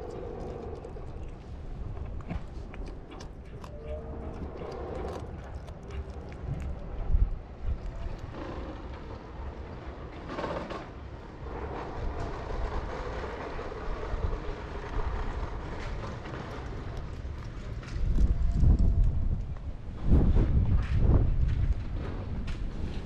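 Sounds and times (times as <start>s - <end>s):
low mechanical rumble: 0.0s - 10.0s.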